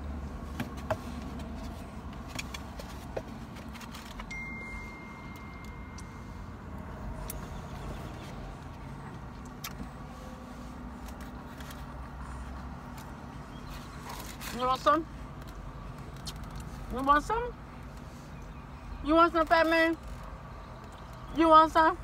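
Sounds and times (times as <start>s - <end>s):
car cabin hum: 0.0s - 10.1s
thin high tone: 4.3s - 6.7s.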